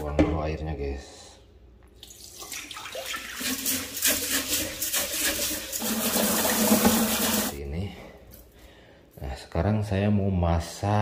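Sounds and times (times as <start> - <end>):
water splashing into sink: 2.0 - 7.6
tap running into pot: 4.1 - 7.5.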